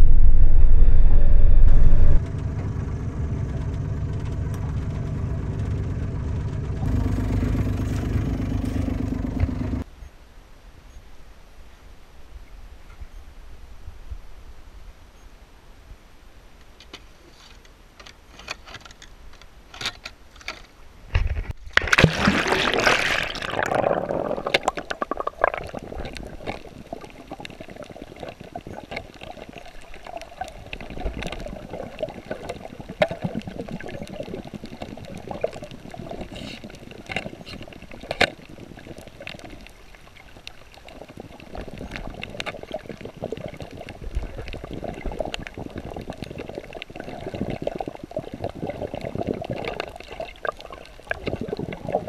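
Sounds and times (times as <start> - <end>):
water sloshing: 21.7 - 52.0
water rushing and splashing: 21.8 - 52.0.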